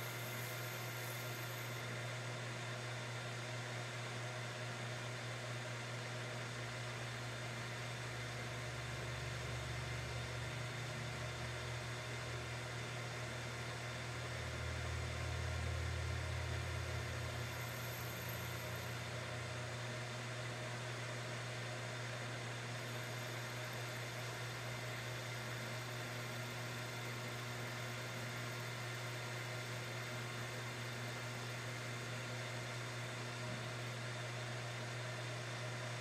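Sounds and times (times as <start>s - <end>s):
lathe motor hum: 0.0s - 2.3s, 16.4s - 19.4s, 21.5s - 34.1s.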